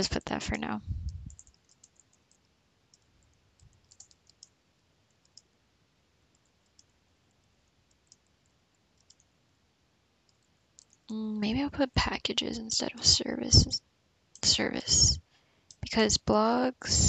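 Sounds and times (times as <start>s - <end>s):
typing on computer keyboard: 1.3s - 5.5s, 7.8s - 9.3s, 10.3s - 11.1s.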